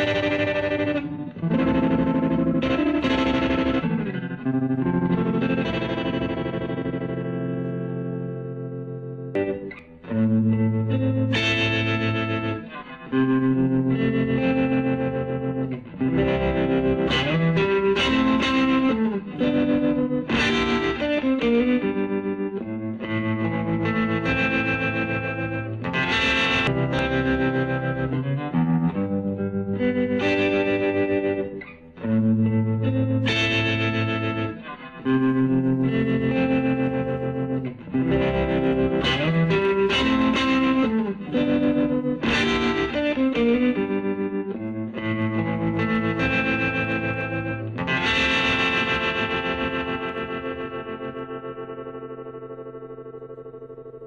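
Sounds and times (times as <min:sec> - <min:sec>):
electric guitar with swirling tremolo: 0:00.0 - 0:54.0.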